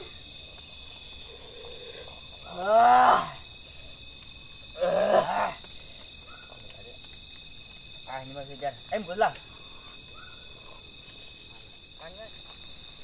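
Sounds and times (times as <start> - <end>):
high-pitched insect chorus: 0.0 - 13.0
men's wordless vocal exclamations: 2.4 - 3.4.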